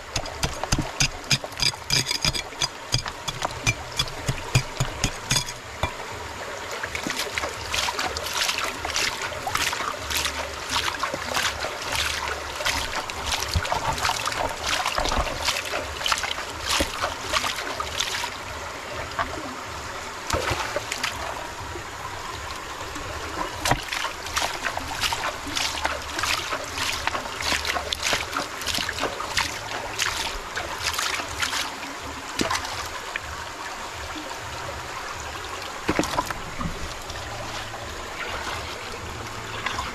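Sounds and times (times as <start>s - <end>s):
water splashing in a pan: 0.0s - 6.0s, 6.9s - 18.4s, 23.6s - 31.8s
shallow stream running: 0.0s - 39.9s.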